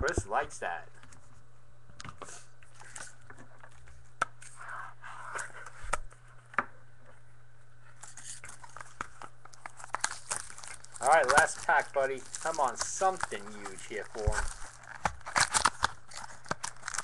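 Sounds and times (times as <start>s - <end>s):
steady low hum: 0.0s - 17.0s
cards and packaging rustling: 2.2s - 4.6s, 8.0s - 17.0s.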